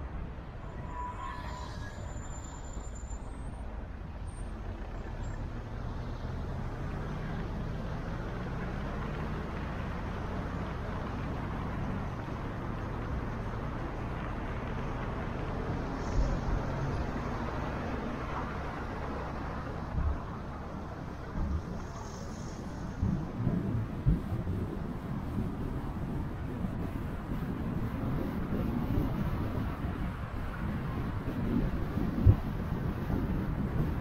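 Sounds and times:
car engine and tyre noise: 0:00.0 - 0:34.0.

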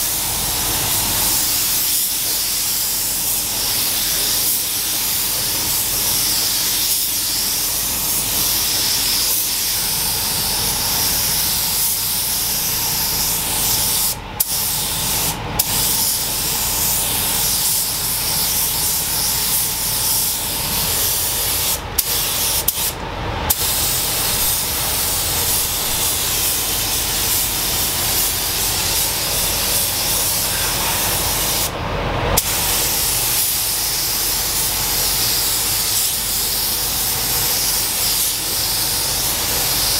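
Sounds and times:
paint spray gun hissing: 0:00.0 - 0:31.8, 0:32.4 - 0:39.9.

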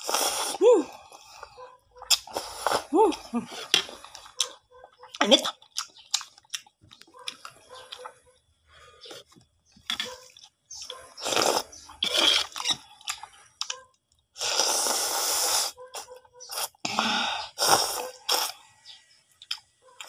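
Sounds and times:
person slurping noodles: 0:00.0 - 0:01.5, 0:02.1 - 0:04.3, 0:11.2 - 0:12.8, 0:14.4 - 0:15.8, 0:16.5 - 0:18.6.

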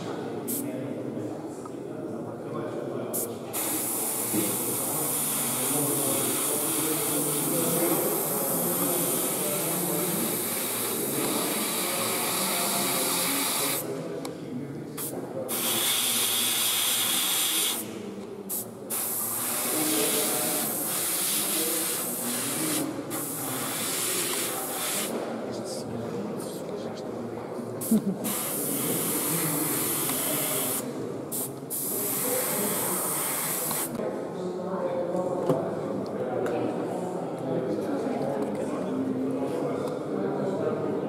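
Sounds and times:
airbrush spraying hiss: 0:03.2 - 0:13.8, 0:15.0 - 0:25.2, 0:27.8 - 0:34.0.

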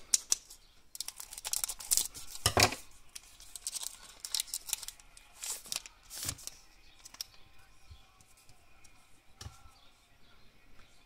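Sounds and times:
foil wrapper crinkling and tearing: 0:00.1 - 0:02.5, 0:03.1 - 0:07.3.

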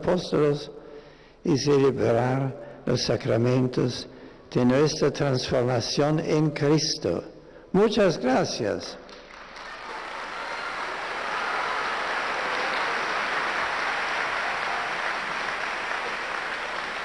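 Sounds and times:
large crowd applauding: 0:09.0 - 0:17.0.

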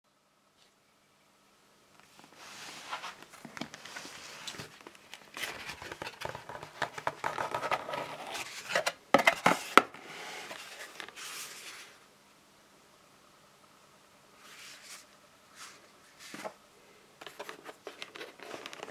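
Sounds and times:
cardboard and paper rustling: 0:02.1 - 0:12.0, 0:14.5 - 0:16.6, 0:17.2 - 0:18.9.

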